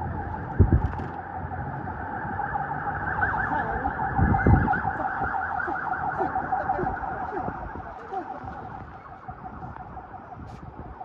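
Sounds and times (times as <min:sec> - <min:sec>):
siren yelping: 0:00.0 - 0:11.0.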